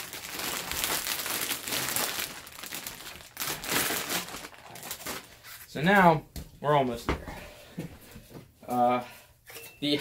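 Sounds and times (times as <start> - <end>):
plastic bag crinkling: 0.0 - 5.9.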